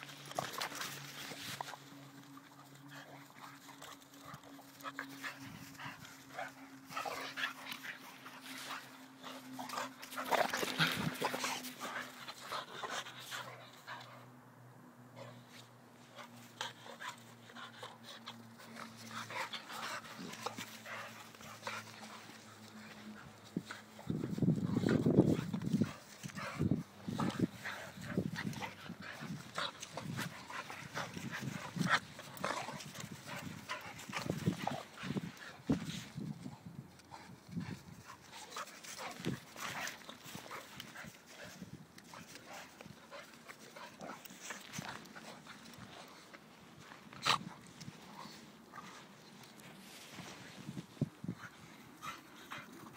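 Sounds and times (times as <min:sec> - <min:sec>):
dogs panting: 0:00.0 - 0:52.9
dogs play noises: 0:00.0 - 0:52.9.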